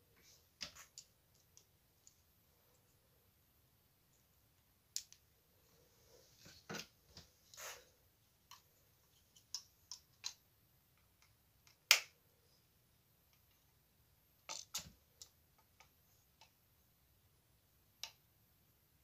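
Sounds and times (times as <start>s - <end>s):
small handling clicks and taps: 8.4s - 12.1s.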